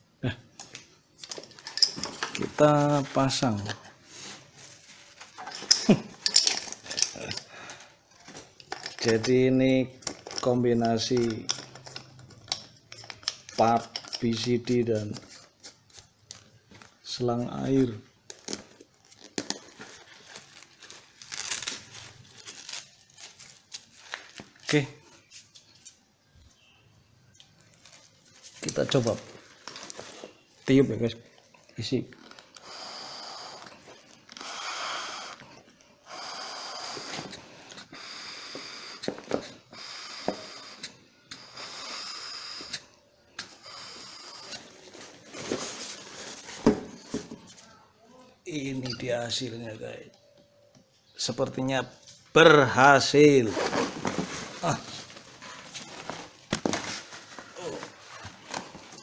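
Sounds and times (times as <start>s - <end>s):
breaths blown into inflator: 32.6s - 33.7s, 34.4s - 35.4s, 36.0s - 37.3s.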